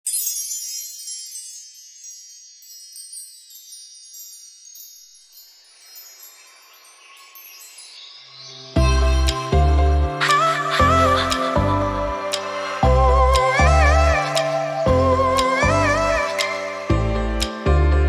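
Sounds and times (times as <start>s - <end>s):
chimes ringing: 0.0s - 10.6s
soft swell of noise: 10.2s - 14.9s.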